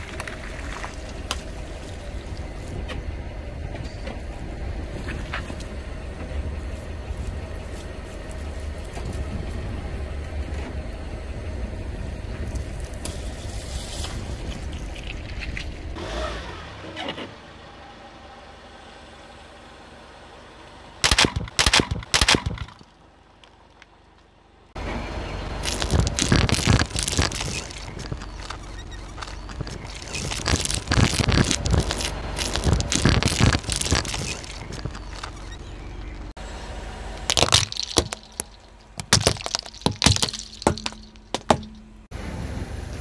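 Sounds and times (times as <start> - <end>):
car engine idling: 19.9 - 42.3
sharp loud snaps: 21.0 - 22.9
tyre squashing water bead bags: 25.6 - 35.4, 37.2 - 41.8.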